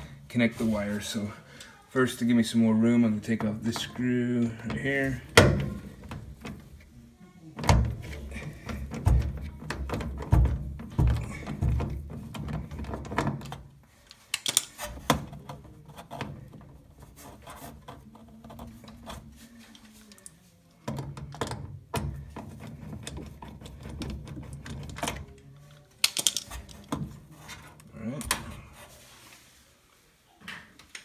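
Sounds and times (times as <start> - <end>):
hands moving plastic parts: 3.2 - 6.9, 7.6 - 29.1.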